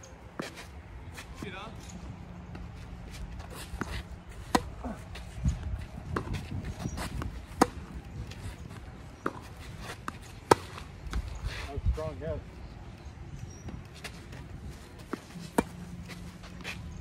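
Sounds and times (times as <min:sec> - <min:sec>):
rackets striking tennis ball: 0:01.4 - 0:11.3, 0:13.7 - 0:16.8.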